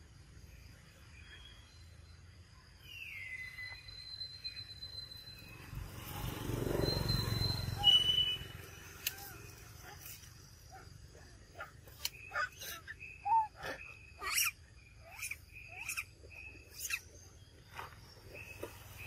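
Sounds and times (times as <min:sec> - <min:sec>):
monkey low grunting: 0:09.7 - 0:16.1
monkey high squeak: 0:12.3 - 0:16.1, 0:16.7 - 0:17.0.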